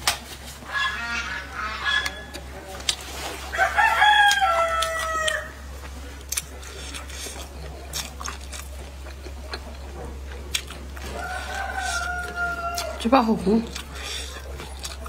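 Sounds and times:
rooster crowing: 0:03.5 - 0:05.6, 0:11.0 - 0:13.1.

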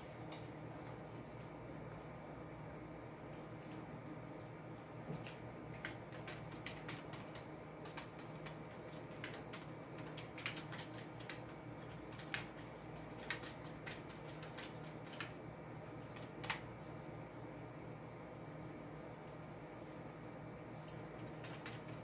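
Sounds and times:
steady low hum: 0:00.0 - 0:22.0
keyboard keys clicking: 0:05.1 - 0:15.4, 0:16.1 - 0:16.7, 0:20.9 - 0:22.0.

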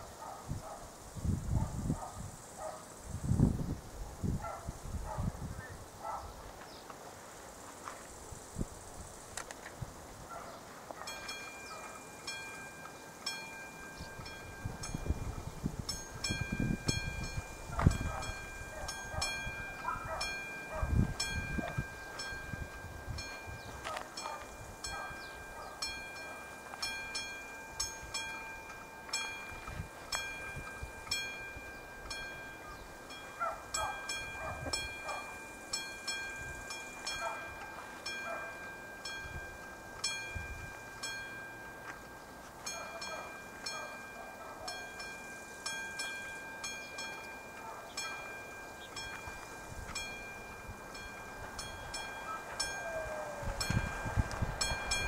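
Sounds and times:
wind on microphone: 0:00.0 - 0:06.6, 0:08.2 - 0:10.5, 0:14.0 - 0:25.8, 0:29.4 - 0:35.3, 0:49.1 - 0:55.0
level crossing warning bell: 0:11.1 - 0:55.0.

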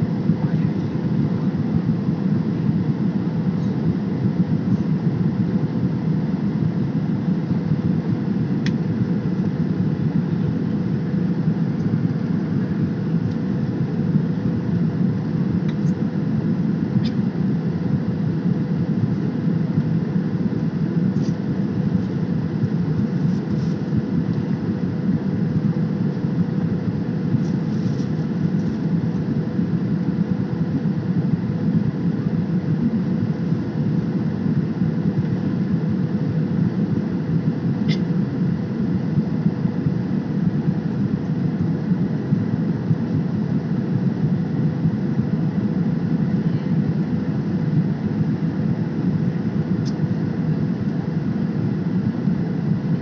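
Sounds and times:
airliner cabin engine rumble: 0:00.0 - 0:53.0
faint hum: 0:00.0 - 0:53.0.

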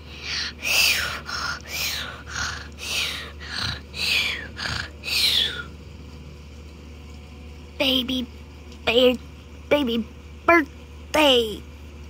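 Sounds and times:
person whimpering: 0:00.2 - 0:05.7.

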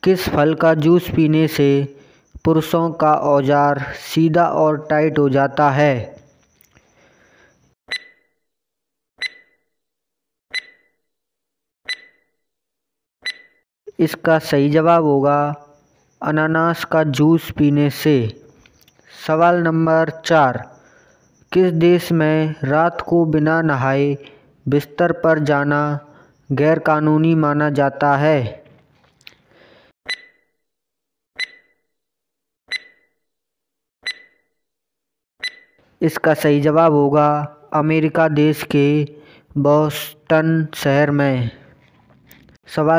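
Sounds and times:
timer ticks with high ring: 0:31.4 - 0:31.8, 0:34.0 - 0:34.4, 0:35.4 - 0:35.8.

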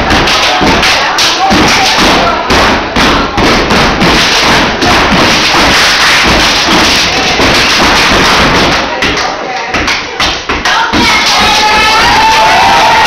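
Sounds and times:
hand claps: 0:00.0 - 0:13.0
body slaps: 0:00.1 - 0:09.2
shoes stomping on hard floor: 0:01.5 - 0:09.2.

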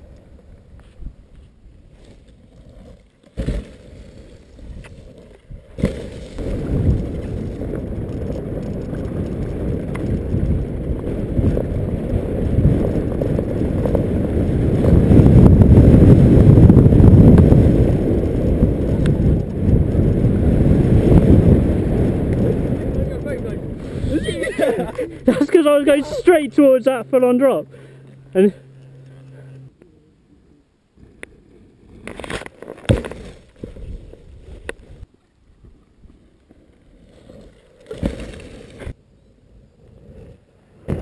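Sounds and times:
wind buffeting microphone: 0:04.6 - 0:26.8.

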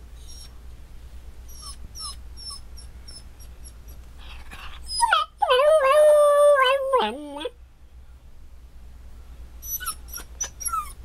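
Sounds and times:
dog whimpering: 0:00.2 - 0:00.5, 0:01.5 - 0:07.5, 0:09.6 - 0:11.0
dog howling: 0:05.0 - 0:07.5.

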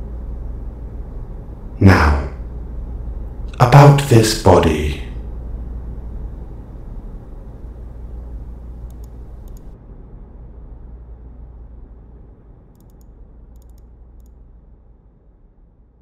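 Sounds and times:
low background rumble: 0:00.0 - 0:16.0
faint clicks: 0:08.8 - 0:09.8, 0:12.8 - 0:14.4.

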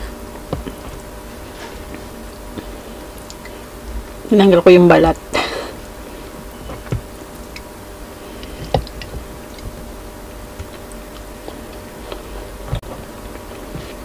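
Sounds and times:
steady low hum: 0:00.0 - 0:14.0
quiet chewing: 0:10.5 - 0:14.0.

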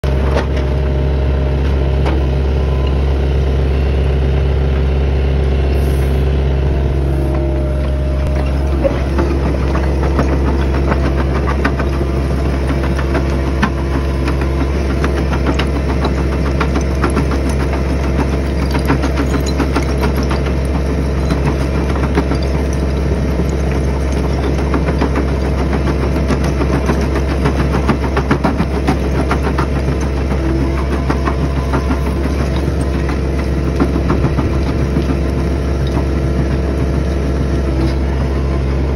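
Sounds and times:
excavator engine running: 0:00.0 - 0:38.9
stone cracking and rubble falling: 0:08.7 - 0:37.6.

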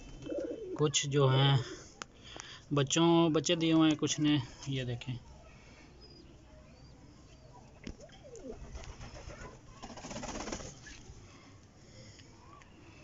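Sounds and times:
pigeons cooing softly: 0:00.0 - 0:01.9, 0:05.5 - 0:11.0.

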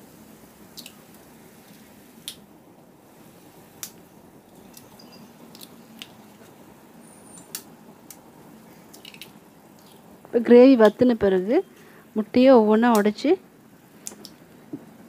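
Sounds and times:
sharp pops and spits: 0:03.7 - 0:06.6, 0:07.4 - 0:10.1, 0:13.9 - 0:14.9.

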